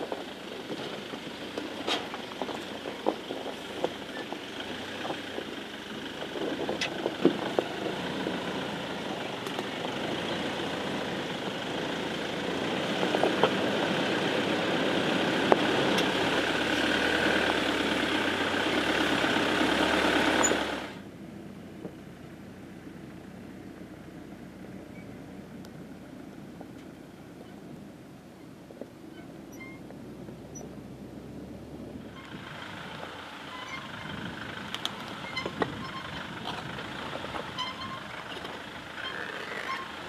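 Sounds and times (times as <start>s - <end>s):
stones clicking under tyres: 0.0s - 21.0s, 29.8s - 30.8s, 32.1s - 40.0s
diesel engine running at low revs: 0.0s - 40.0s.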